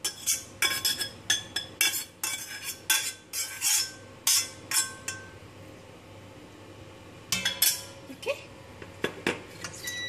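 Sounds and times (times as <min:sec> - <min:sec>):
metal spoon scraping saucepan: 0:00.0 - 0:05.3.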